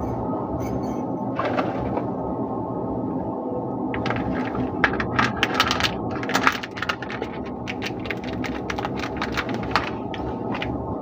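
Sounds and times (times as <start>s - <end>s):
low background drone: 0.0s - 11.0s
plastic wrapper crinkling: 4.0s - 10.8s.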